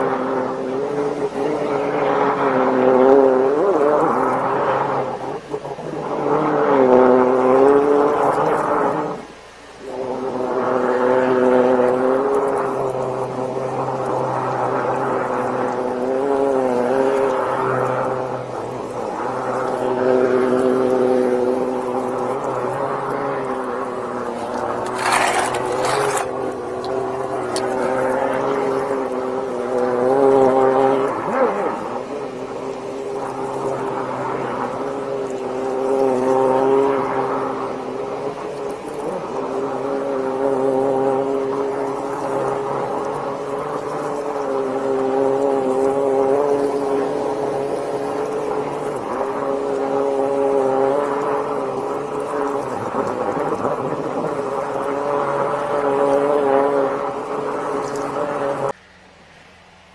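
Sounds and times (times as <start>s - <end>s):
drain jetting machine drone: 0.0s - 59.9s
pump engine humming: 0.0s - 59.9s
water spray hiss: 0.0s - 59.9s.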